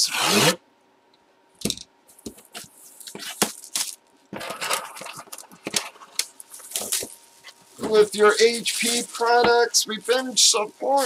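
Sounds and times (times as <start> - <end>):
plastic wrap crinkling: 2.1 - 11.0.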